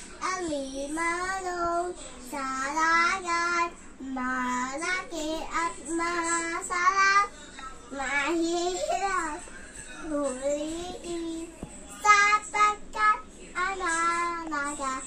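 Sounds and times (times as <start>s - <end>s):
girl singing unaccompanied: 0.0s - 15.0s.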